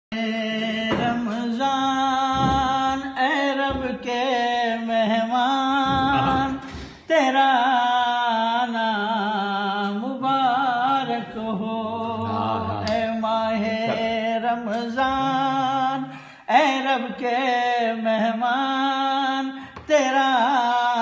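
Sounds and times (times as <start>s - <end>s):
man singing unaccompanied: 0.1s - 21.0s.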